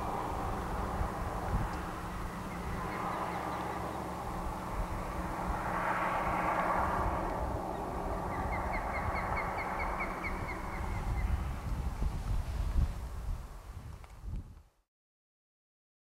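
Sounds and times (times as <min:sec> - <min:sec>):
rushing noise of passing vehicle: 0:00.0 - 0:13.8
bird chirping: 0:02.2 - 0:04.2, 0:07.7 - 0:11.4.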